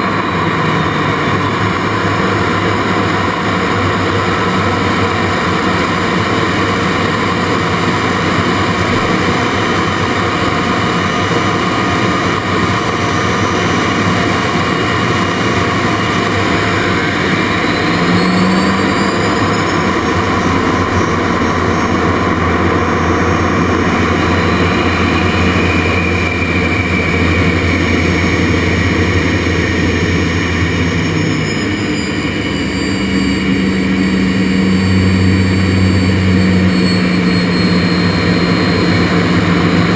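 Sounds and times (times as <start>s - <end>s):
jet engine whine: 0.0s - 39.9s.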